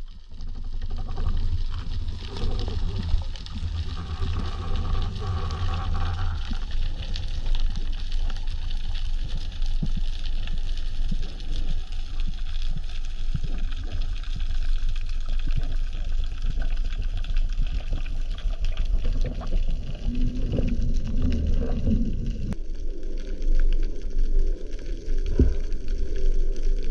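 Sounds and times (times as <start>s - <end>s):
clicks and bubbles crackling: 0.0s - 26.9s
droning hum: 0.0s - 26.9s
underwater water rumble: 0.0s - 26.9s.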